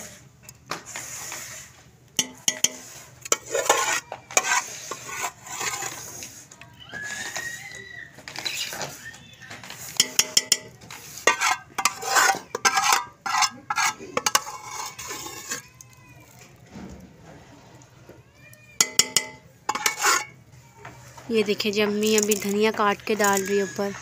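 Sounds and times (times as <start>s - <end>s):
metal ladle clinking on pots: 2.2s - 5.8s, 9.9s - 15.6s, 18.8s - 20.4s.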